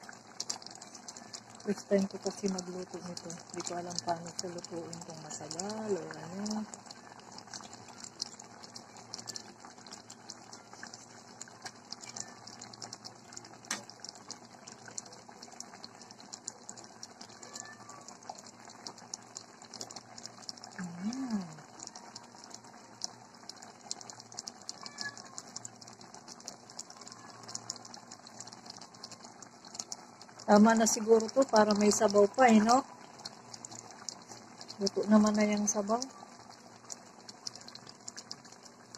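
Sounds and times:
bubbles popping in simmering pot: 0:00.0 - 0:38.9.

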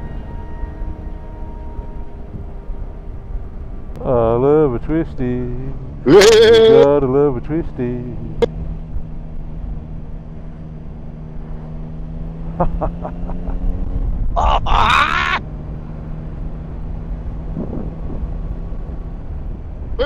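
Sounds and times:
wind rumble: 0:00.0 - 0:07.2, 0:07.9 - 0:20.0
motorcycle engine cruising: 0:00.0 - 0:20.0
person's voice: 0:04.0 - 0:08.5.

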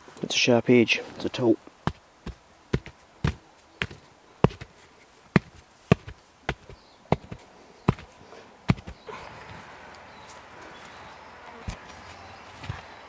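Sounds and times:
stone chopping into earth: 0:01.8 - 0:04.7, 0:05.4 - 0:08.1, 0:08.7 - 0:09.0.

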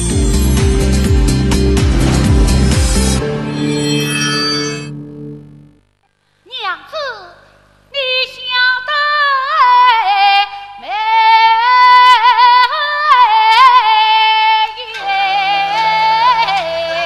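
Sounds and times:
soft instrumental accompaniment: 0:00.0 - 0:05.4
woman singing opera aria: 0:08.0 - 0:17.0.

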